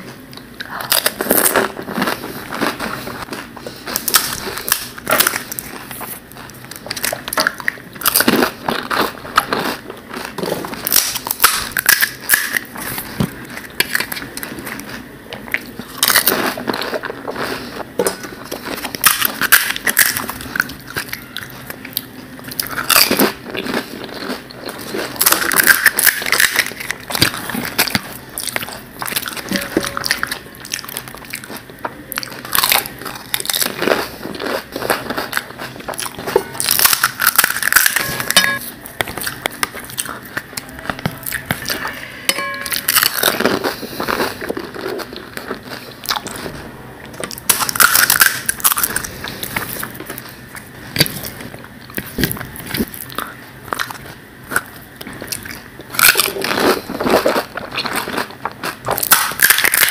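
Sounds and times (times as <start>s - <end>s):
crisp shells crunching when chewed: 0.0s - 42.0s, 42.7s - 59.9s.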